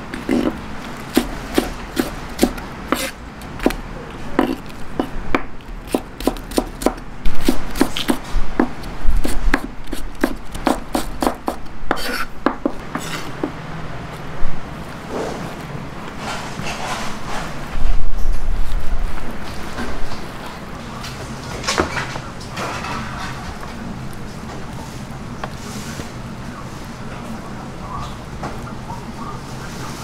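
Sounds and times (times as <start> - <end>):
knife chopping on wooden board: 0.2 - 13.6.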